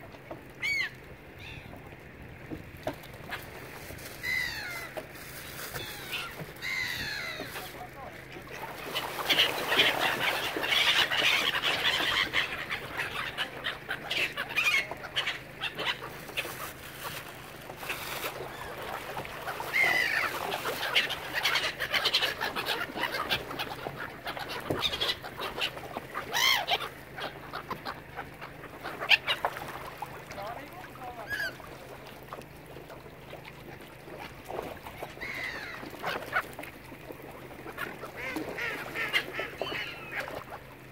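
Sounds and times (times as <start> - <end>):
waterbirds calling: 0.0 - 40.9
gliding bird cries: 0.6 - 1.8, 4.2 - 5.0, 5.7 - 7.6, 8.9 - 16.4, 19.5 - 29.5, 31.2 - 31.7, 35.0 - 36.4, 38.1 - 40.5.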